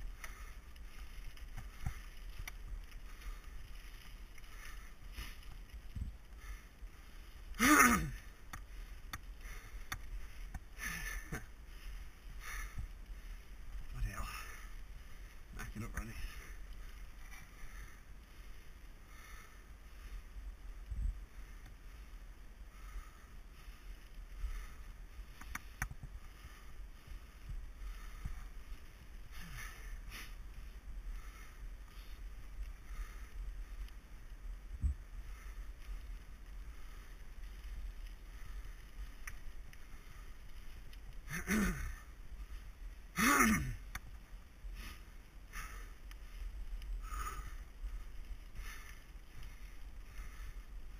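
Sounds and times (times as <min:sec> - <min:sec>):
bike clicking and rattling: 0:00.0 - 0:07.5
bike tyres rumbling over dirt: 0:00.0 - 0:50.9.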